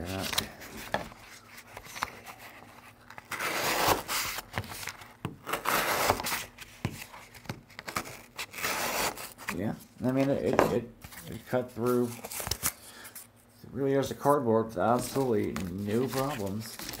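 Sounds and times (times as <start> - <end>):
knife sawing through cardboard: 3.3 - 4.4.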